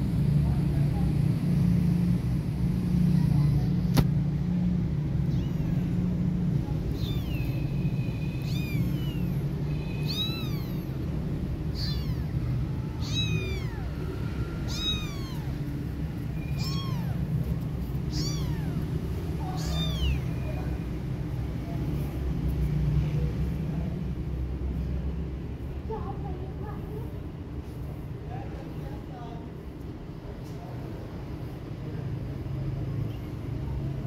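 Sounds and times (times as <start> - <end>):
kitten mewing: 5.1 - 20.8.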